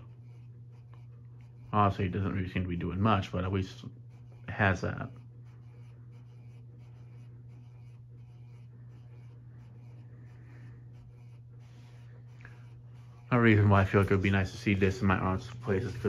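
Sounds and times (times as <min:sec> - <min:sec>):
ceiling fan motor hum: 0:00.0 - 0:16.0
fan blades swishing: 0:00.0 - 0:16.0.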